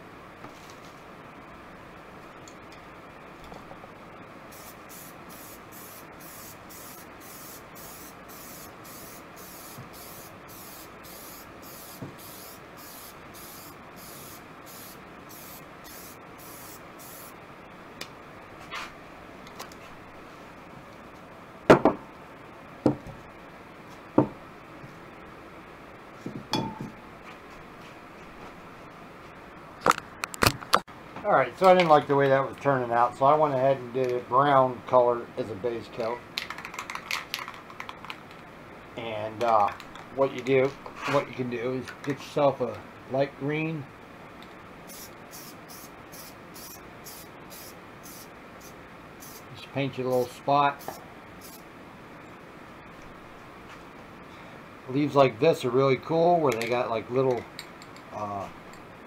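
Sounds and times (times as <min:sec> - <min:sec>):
spray paint can bursts: 0:04.5 - 0:17.3, 0:44.9 - 0:49.5, 0:50.8 - 0:51.6.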